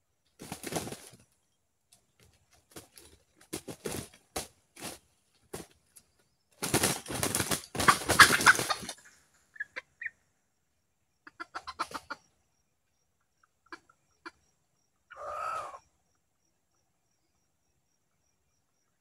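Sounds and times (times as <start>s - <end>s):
rooster wings flapping: 0.4s - 1.2s, 2.6s - 5.8s, 6.6s - 9.0s
rooster clucks: 7.5s - 10.2s, 11.2s - 12.3s, 13.6s - 14.5s, 15.1s - 15.9s.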